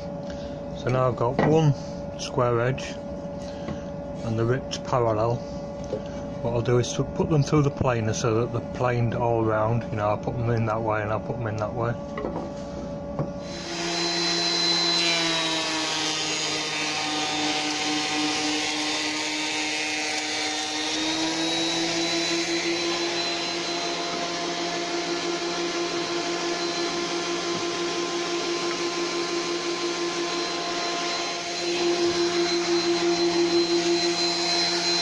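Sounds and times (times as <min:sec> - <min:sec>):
planer whining: 0:13.4 - 0:35.0.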